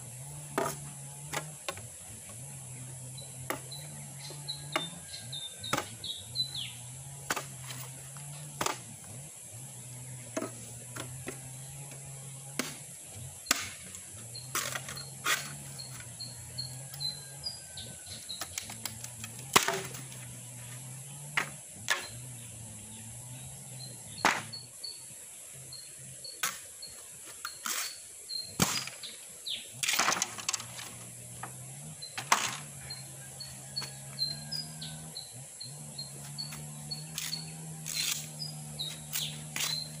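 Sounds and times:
birds chirping: 0:00.0 - 0:40.0
knife chopping bamboo: 0:00.4 - 0:01.9, 0:03.4 - 0:04.0, 0:04.6 - 0:06.1, 0:07.2 - 0:09.0, 0:10.2 - 0:15.6, 0:24.2 - 0:24.5.

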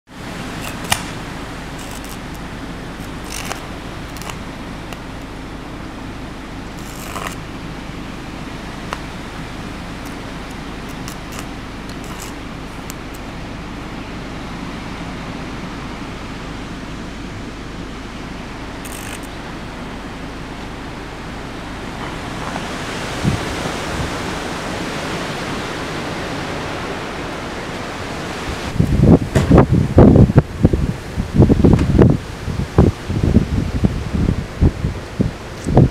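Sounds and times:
strong wind blowing: 0:00.1 - 0:35.9
wind thumping microphone: 0:21.6 - 0:26.8, 0:28.2 - 0:35.9.

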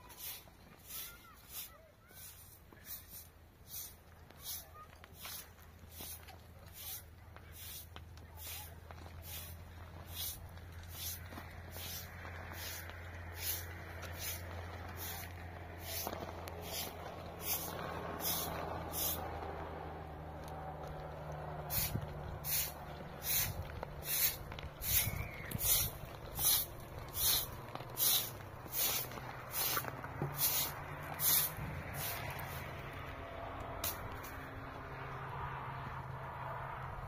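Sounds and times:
broom sweeping gritty ground: 0:00.0 - 0:34.8.

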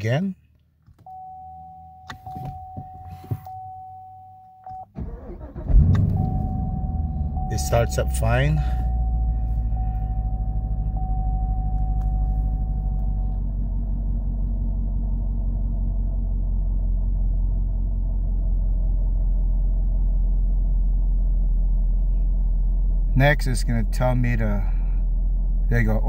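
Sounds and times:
car engine idling: 0:04.9 - 0:26.0
steady high tone: 0:05.8 - 0:13.2.

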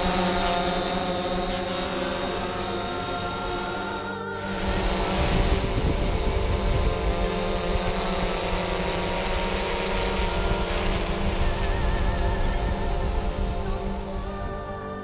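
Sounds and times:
rotor wash rumble on microphone: 0:00.0 - 0:14.8
drone propellers humming: 0:00.0 - 0:15.0.

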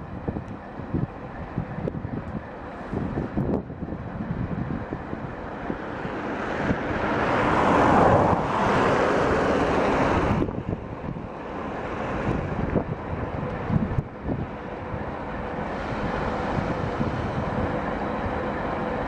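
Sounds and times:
diesel locomotive rumbling: 0:00.0 - 0:19.0.

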